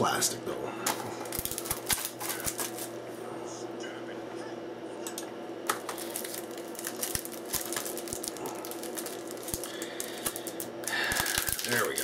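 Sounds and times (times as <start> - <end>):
shrink-wrap plastic crinkling: 0.9 - 2.9, 5.7 - 12.0.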